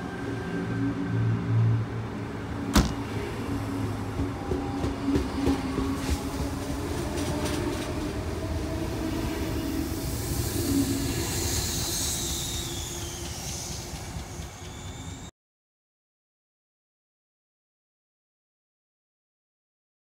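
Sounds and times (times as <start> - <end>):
train rumble: 0.0 - 15.3.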